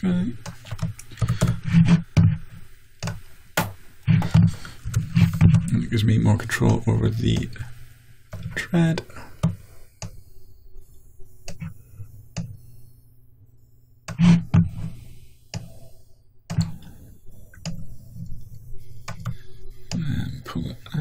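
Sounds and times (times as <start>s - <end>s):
computer mouse clicks: 15.5s - 15.8s, 17.5s - 20.1s.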